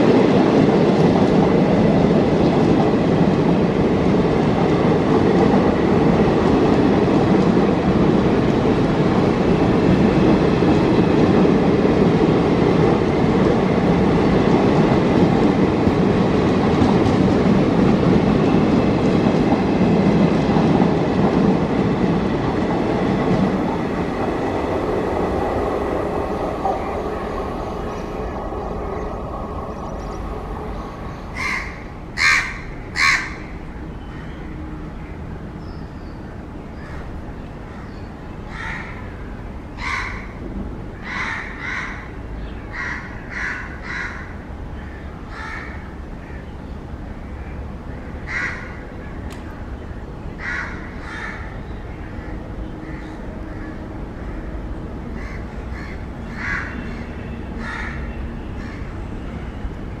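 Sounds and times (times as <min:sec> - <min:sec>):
steady low rumble: 0:19.0 - 0:32.8.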